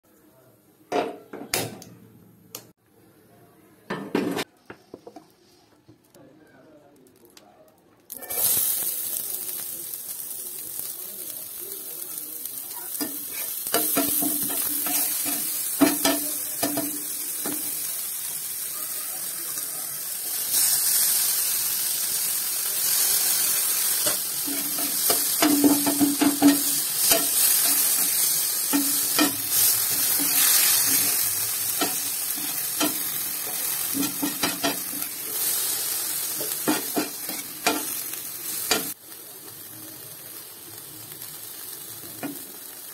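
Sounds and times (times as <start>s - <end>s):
onions and tomatoes sizzling in oil: 8.0s - 42.9s
spatula scraping and knocking pan: 13.0s - 17.6s, 24.1s - 31.2s, 33.9s - 35.1s, 36.4s - 38.0s.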